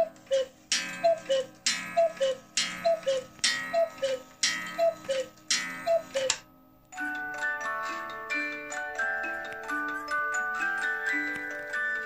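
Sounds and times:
cuckoo clock two-note call: 0:00.0 - 0:07.3.

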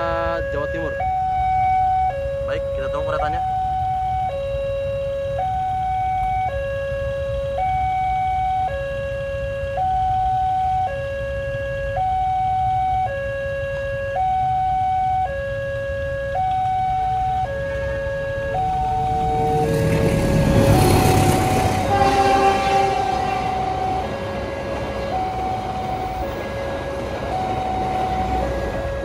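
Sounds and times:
level crossing two-tone alarm: 0:00.0 - 0:29.0
train horn: 0:19.3 - 0:27.0.

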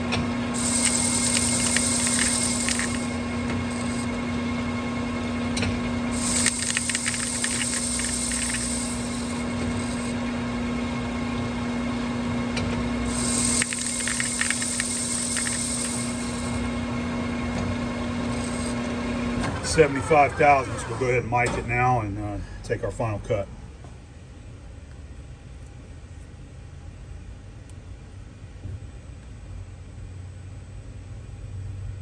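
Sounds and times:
cutting hiss: 0:00.6 - 0:04.1, 0:06.2 - 0:10.2, 0:13.1 - 0:16.6, 0:18.2 - 0:18.9
metal lathe humming: 0:00.6 - 0:04.3, 0:06.1 - 0:10.3, 0:13.0 - 0:20.3.

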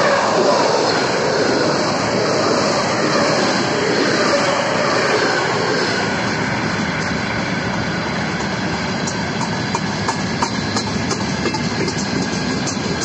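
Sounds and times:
electric train rushing by: 0:00.0 - 0:13.0
train wheels rumbling on rail: 0:00.0 - 0:13.0
wheels clicking over rail joints: 0:08.4 - 0:13.0.

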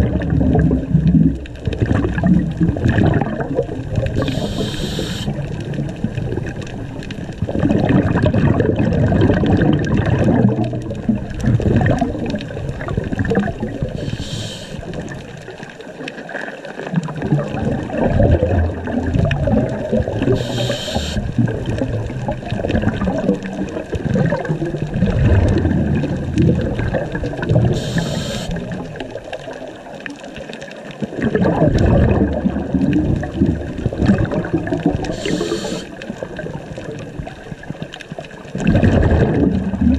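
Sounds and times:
gurgling exhaled bubbles: 0:00.0 - 0:39.9
hiss of diver inhaling: 0:04.2 - 0:05.3, 0:13.9 - 0:14.9, 0:20.3 - 0:21.2, 0:27.7 - 0:28.6, 0:35.1 - 0:36.0.

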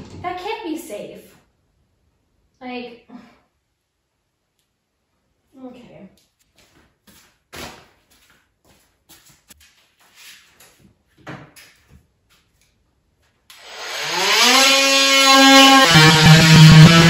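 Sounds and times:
guitar music: 0:15.6 - 0:17.0.

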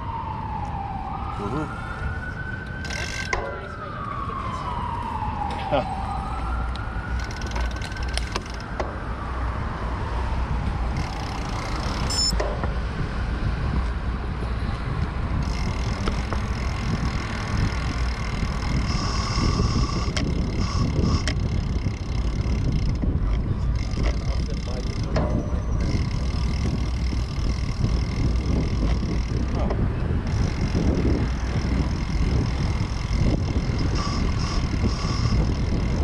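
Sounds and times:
siren wailing: 0:00.0 - 0:12.4, 0:16.6 - 0:22.7, 0:31.7 - 0:35.7
wind and road noise: 0:00.0 - 0:36.0.

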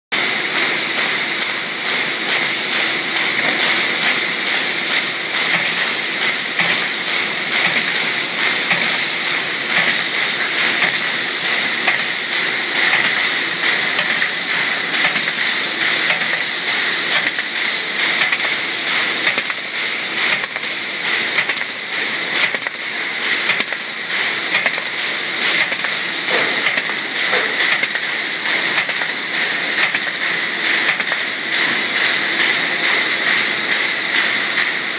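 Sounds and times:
machine hiss and whir: 0:00.2 - 0:34.9.

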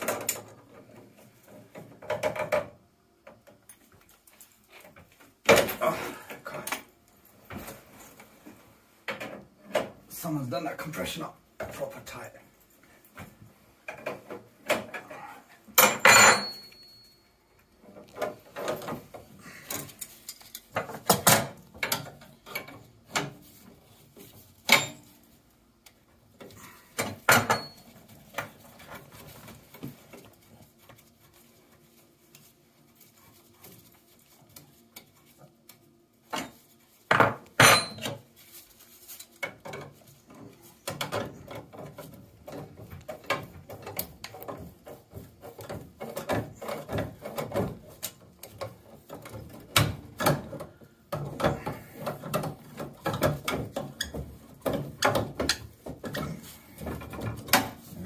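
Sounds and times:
metal tools clinking on pipework: 0:14.9 - 0:17.8, 0:24.6 - 0:25.3, 0:27.0 - 0:28.1, 0:37.6 - 0:38.2
ringing metallic knocks: 0:15.8 - 0:17.1.

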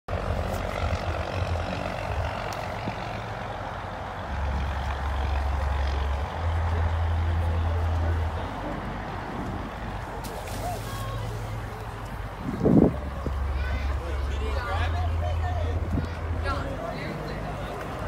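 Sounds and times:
wind buffeting microphone: 0:07.4 - 0:18.0.

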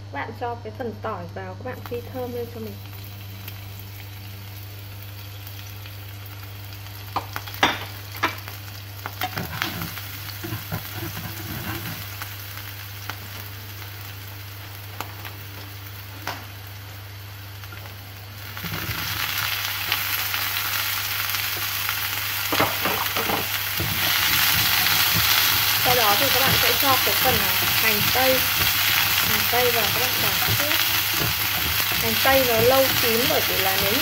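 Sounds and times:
steady low hum: 0:00.0 - 0:34.0
garlic and onions sizzling in oil: 0:01.6 - 0:34.0
utensil scraping a pan: 0:09.2 - 0:12.0.

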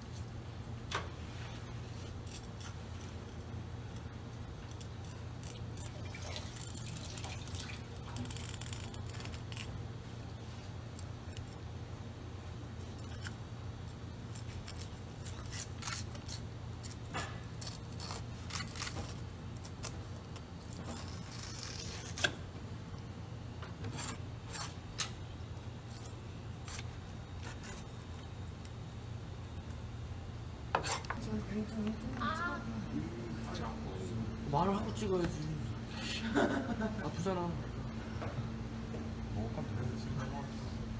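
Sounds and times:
steady low hum: 0:00.0 - 0:40.9
knife scraping fish: 0:23.8 - 0:25.1, 0:25.9 - 0:28.0.

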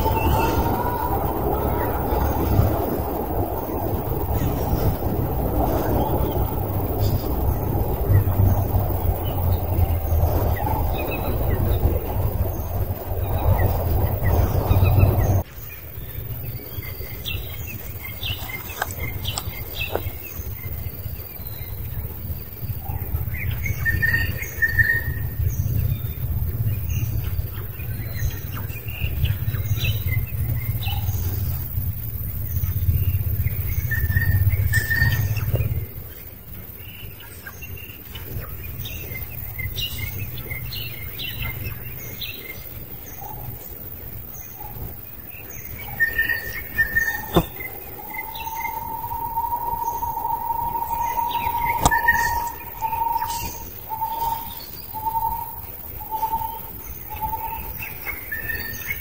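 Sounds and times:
low rumble: 0:00.0 - 0:36.8
birds chirping: 0:00.0 - 0:59.0.

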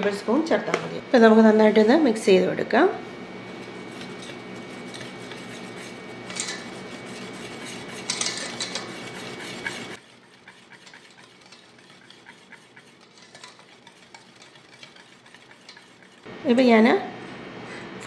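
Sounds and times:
whisk scraping metal bowl: 0:03.4 - 0:16.3.

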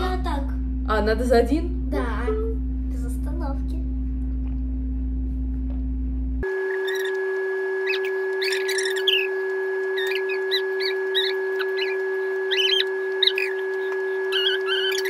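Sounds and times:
steady held tone: 0:06.4 - 0:15.0
high squeaky bird-like chirps: 0:06.7 - 0:15.0.

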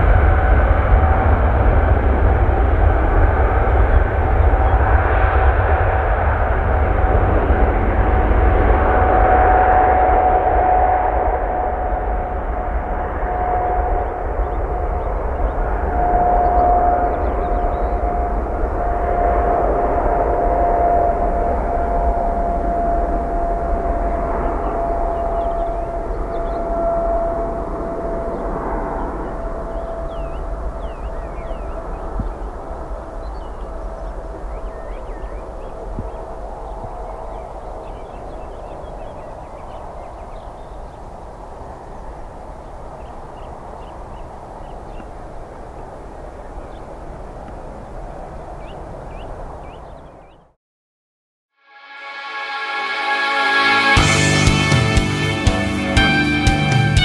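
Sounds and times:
jet engines roaring: 0:00.0 - 0:50.0, 0:52.1 - 0:57.0
small birds chirping: 0:29.0 - 0:32.5, 0:33.2 - 0:45.2.

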